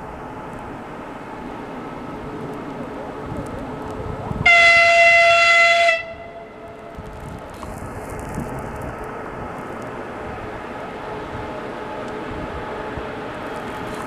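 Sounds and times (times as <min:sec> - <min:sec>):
train rumbling: 0:00.0 - 0:14.0
high-pitched locomotive horn: 0:04.4 - 0:06.8.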